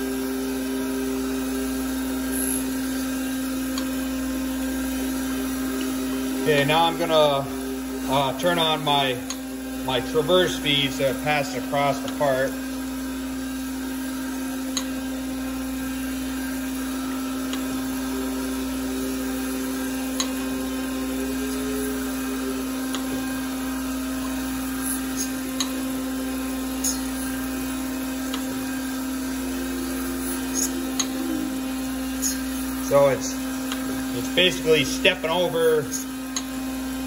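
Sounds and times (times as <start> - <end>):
surface grinder motor hum: 0.0 - 37.0.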